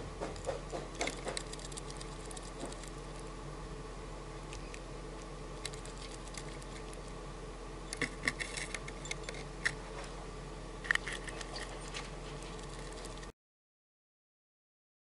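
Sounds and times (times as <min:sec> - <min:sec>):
steady low hum: 0:00.0 - 0:13.4
bird pecking at orange: 0:00.2 - 0:03.3, 0:04.4 - 0:07.2.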